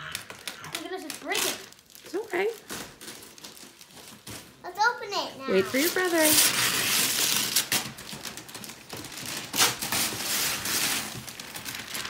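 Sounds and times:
wrapping paper tearing and crinkling: 0.0 - 12.0.

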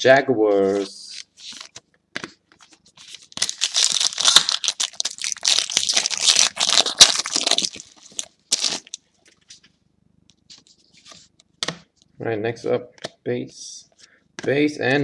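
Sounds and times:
foil wrapper crinkling and tearing: 3.0 - 9.0.

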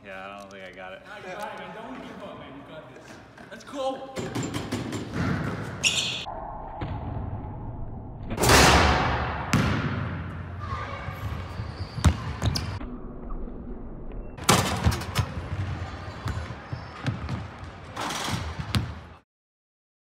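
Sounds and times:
basketball bouncing on hardwood floor: 11.2 - 12.8.

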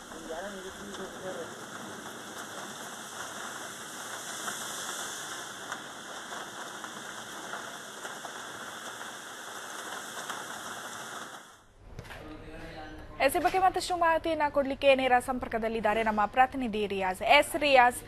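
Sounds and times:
heavy rain on wet road: 0.0 - 11.7.

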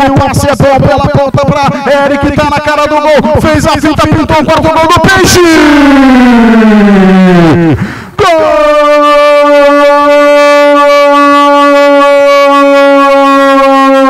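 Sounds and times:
commentator shouting long goal cry: 1.8 - 14.0
quick breath: 7.8 - 8.2.

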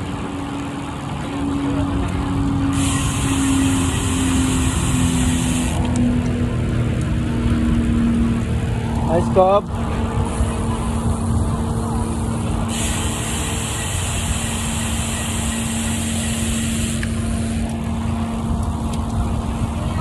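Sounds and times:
road and wind noise: 0.0 - 20.0
steady low hum: 0.0 - 20.0
band of hiss: 2.8 - 5.8, 12.7 - 17.1.

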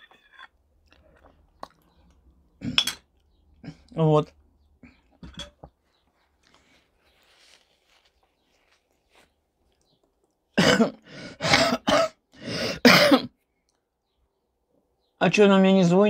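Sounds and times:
woman coughing: 10.6 - 12.2, 12.8 - 13.3.

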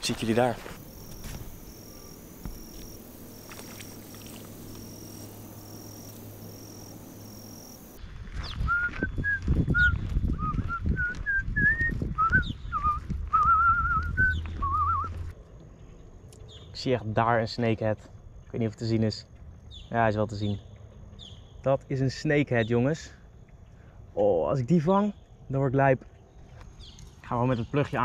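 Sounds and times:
footsteps thumping: 0.0 - 5.4
insects chirring: 0.0 - 8.0
person whistling a tune: 8.6 - 15.2.

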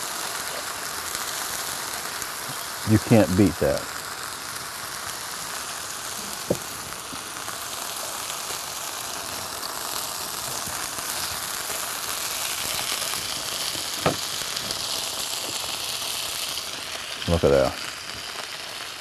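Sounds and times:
chicken sizzling on a griddle: 0.0 - 19.0.

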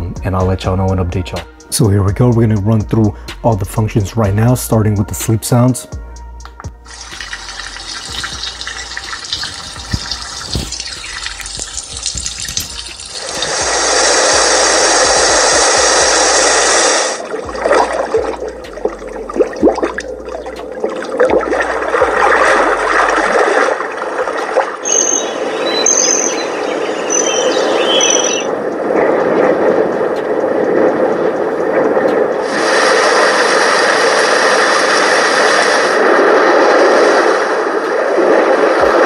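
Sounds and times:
crackling clicks noise: 6.4 - 13.7, 17.2 - 33.7, 34.9 - 39.0
smooth steady noise: 6.7 - 39.0
short high chirps: 24.8 - 28.5.

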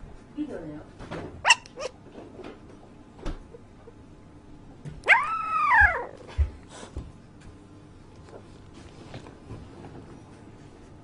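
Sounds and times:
puppy howling: 5.0 - 6.3.

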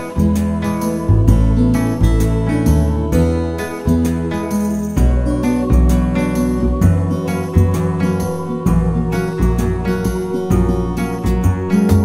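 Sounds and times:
strummed acoustic guitar music: 0.0 - 12.0.

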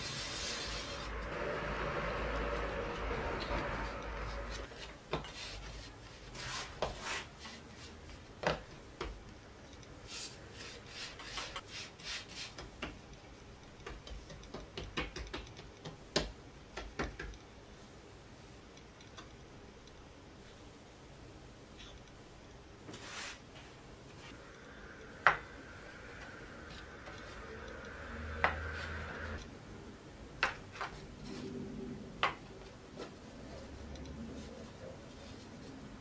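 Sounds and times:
hands patting dough on wooden board: 12.4 - 13.1, 13.8 - 17.4.

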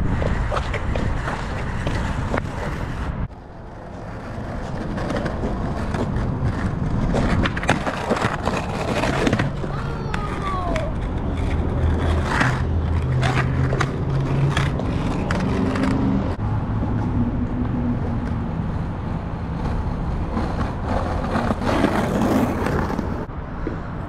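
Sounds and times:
skateboard clacks: 0.0 - 16.1
skateboard scraping along curb: 0.0 - 24.0
skateboard wheels rolling on pavement: 0.0 - 24.0.

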